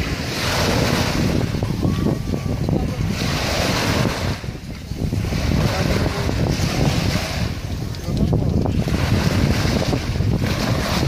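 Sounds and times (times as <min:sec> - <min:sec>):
sea waves washing onto shore: 0:00.0 - 0:11.0
wind buffeting microphone: 0:00.0 - 0:11.0.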